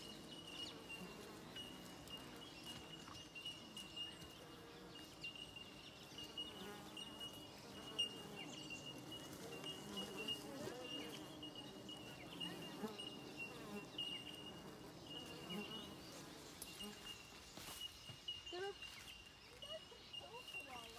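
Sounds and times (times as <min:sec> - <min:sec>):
bees buzzing: 0:00.0 - 0:17.2.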